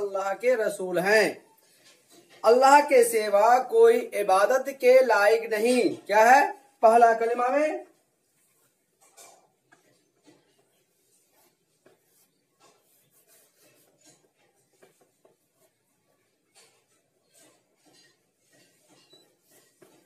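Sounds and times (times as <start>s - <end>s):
chalk scratching on blackboard: 9.7s - 20.0s.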